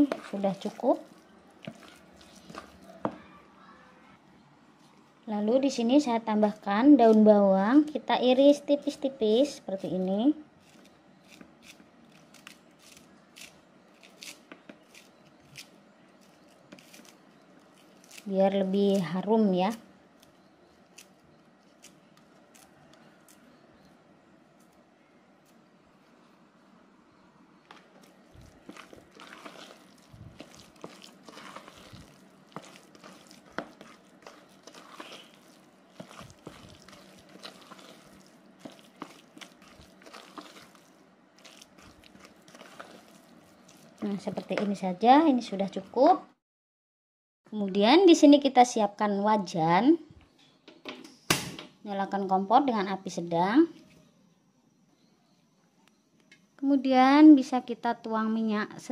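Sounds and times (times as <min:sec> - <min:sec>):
spatula stirring dough in bowl: 0:00.0 - 0:03.2, 0:14.1 - 0:19.8, 0:27.8 - 0:45.9.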